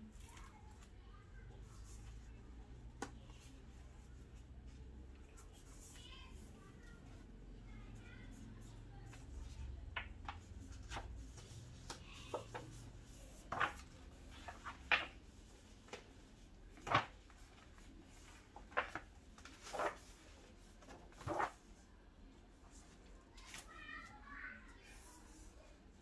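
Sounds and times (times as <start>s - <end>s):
paper pages turning: 10.0s - 16.0s, 16.7s - 21.6s.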